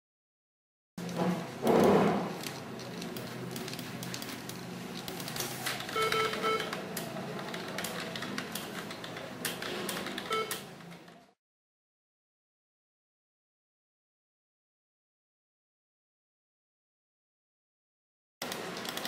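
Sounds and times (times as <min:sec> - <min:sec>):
computer keys clicking: 0:02.4 - 0:11.2, 0:18.4 - 0:19.0
short electronic beeps: 0:06.0 - 0:06.7, 0:10.3 - 0:10.6.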